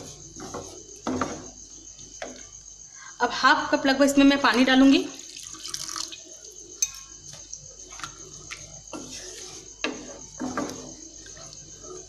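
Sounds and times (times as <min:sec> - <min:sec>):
wooden spatula stirring gravy in pan: 0:00.0 - 0:01.3, 0:07.3 - 0:12.0.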